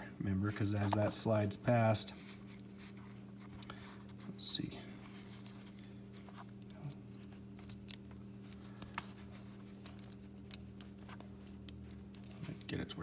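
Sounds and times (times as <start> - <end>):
steady low hum: 0.0 - 13.0
small metallic clicks of parts: 7.6 - 12.8.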